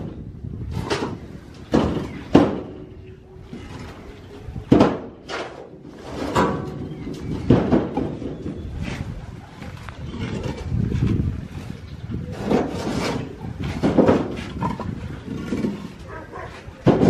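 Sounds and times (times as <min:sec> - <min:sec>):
building work knocks and bangs: 0:00.0 - 0:02.9, 0:04.7 - 0:08.7, 0:12.3 - 0:16.0, 0:16.8 - 0:17.0.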